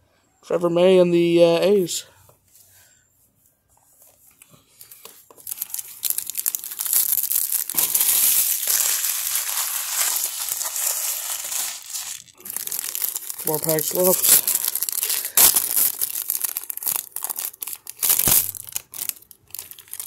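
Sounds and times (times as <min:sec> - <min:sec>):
foil wrapper tearing and crinkling: 0:05.0 - 0:20.0.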